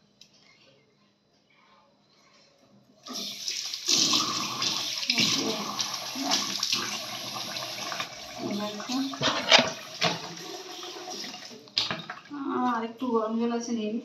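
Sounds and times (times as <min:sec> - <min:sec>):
tap water running into basin: 0:03.0 - 0:12.4.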